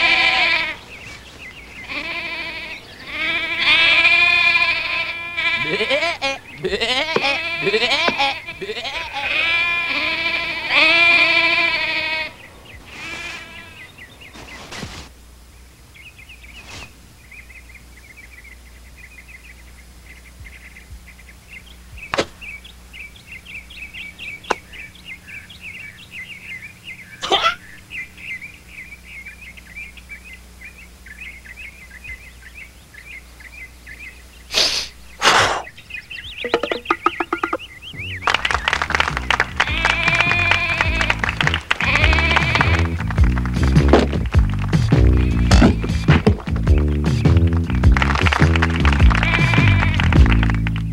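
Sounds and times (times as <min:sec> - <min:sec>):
sheep bleating: 0:00.0 - 0:00.8, 0:01.8 - 0:13.9, 0:39.6 - 0:43.1, 0:48.9 - 0:50.3
faint bird chirping: 0:00.0 - 0:38.8
sharp knocks: 0:36.5 - 0:37.6.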